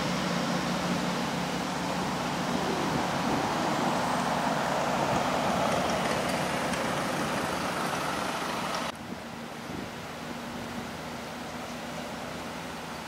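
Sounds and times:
vehicle driving by: 0.0 - 8.9
truck diesel engine droning: 0.0 - 13.0.

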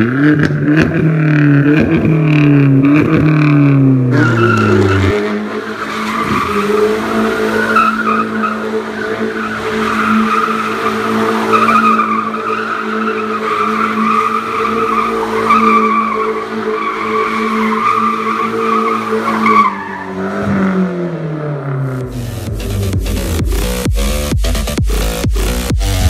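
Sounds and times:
turbocharged car engine revving: 0.0 - 26.0
tyres squealing: 4.1 - 20.5.

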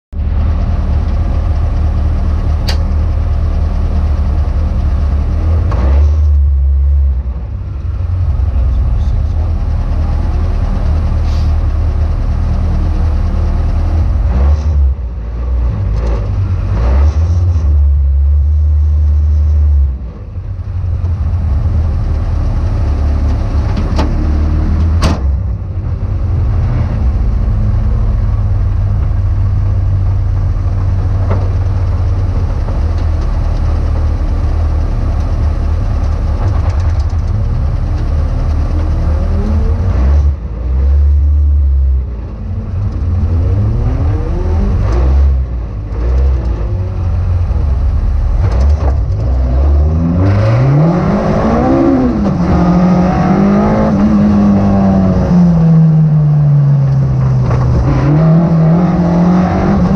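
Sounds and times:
car engine idling: 0.1 - 5.7, 6.3 - 16.8, 17.8 - 49.5.

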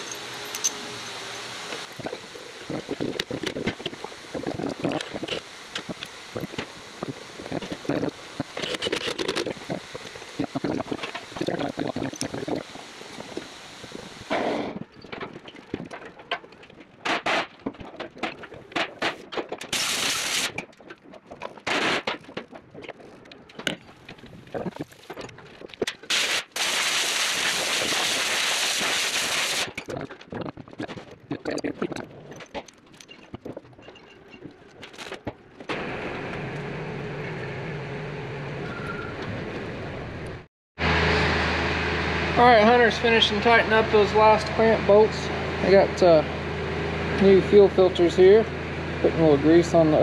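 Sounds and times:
burst of steady hiss: 26.1 - 29.7.

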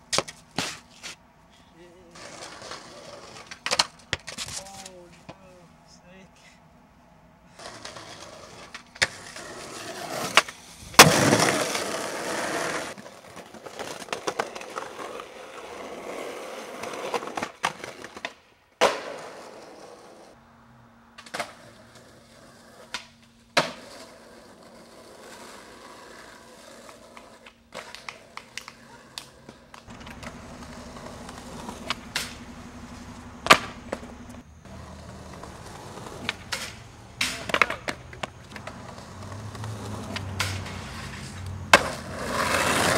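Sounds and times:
skateboard scraping: 0.0 - 5.3, 7.5 - 20.4, 21.2 - 42.9
skateboard wheels rolling on concrete: 0.0 - 6.3, 7.0 - 42.9
skateboard pops and clacks: 3.3 - 5.4, 10.1 - 11.9, 17.1 - 19.4, 22.8 - 24.0, 26.8 - 32.4, 33.4 - 34.1, 36.1 - 39.0, 39.6 - 40.9, 41.7 - 42.9.

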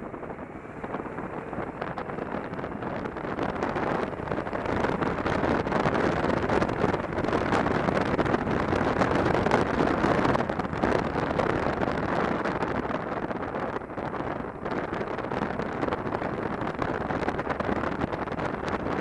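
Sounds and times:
motorcycle engine and tyre rumble: 0.0 - 19.0
wind rushing over microphone: 0.0 - 19.0.

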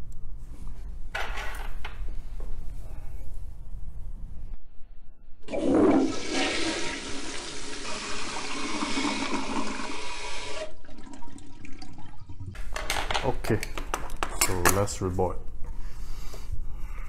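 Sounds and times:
toilet flushing: 5.4 - 12.6.

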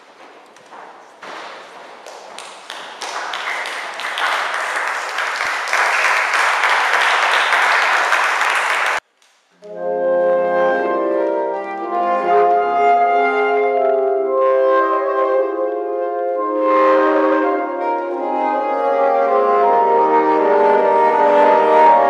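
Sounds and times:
audience applause: 2.0 - 9.0
saxophone quartet playing chords: 9.6 - 22.0.

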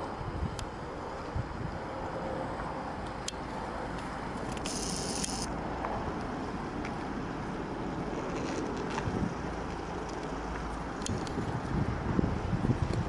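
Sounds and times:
distant jet airliner engines: 0.0 - 13.0
short hiss: 4.6 - 5.5.

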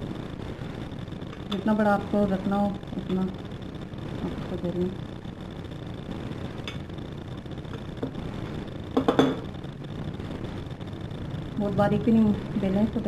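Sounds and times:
steady background hiss: 0.0 - 13.0
rolling pin knocking on worktop: 9.0 - 9.4.

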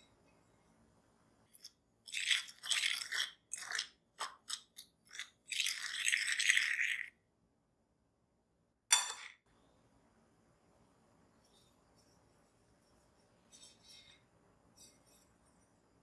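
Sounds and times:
fork stirring in ceramic bowl: 1.5 - 7.1.

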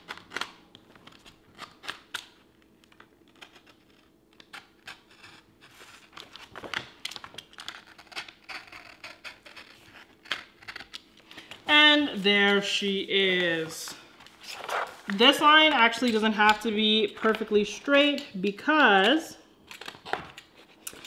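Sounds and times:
paper sheet rustling: 12.0 - 15.4.

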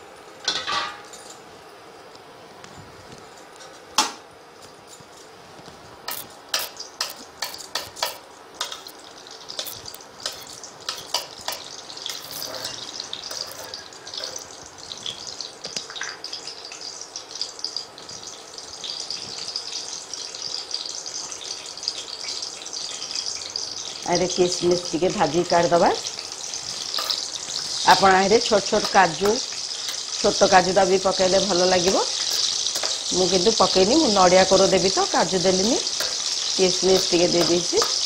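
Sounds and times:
ghee sizzling: 0.0 - 38.0
metal spatula scraping a pan: 9.5 - 14.6, 26.8 - 28.0.

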